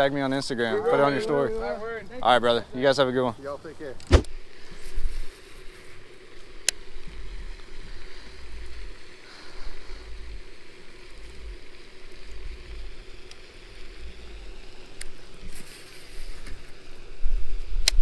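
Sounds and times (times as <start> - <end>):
faint steady hum: 0.0 - 18.0
sharp knock: 4.0 - 4.3.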